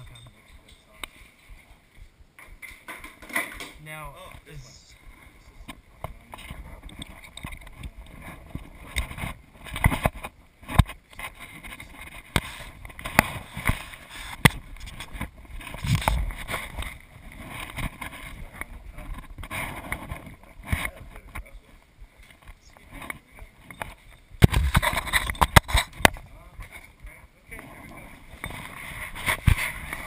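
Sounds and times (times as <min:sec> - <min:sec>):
cloth rubbing on microphone: 0:07.7 - 0:21.2, 0:24.5 - 0:30.0.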